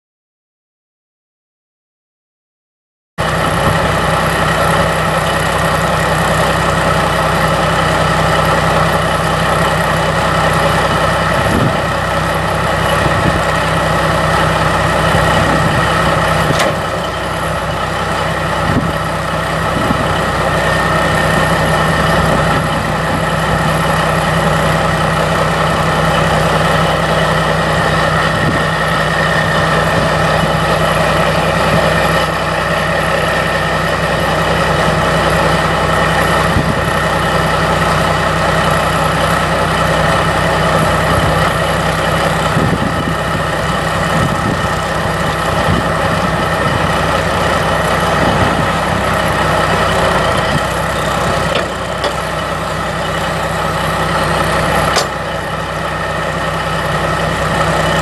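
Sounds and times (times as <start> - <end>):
diesel truck idling: 3.2 - 58.0.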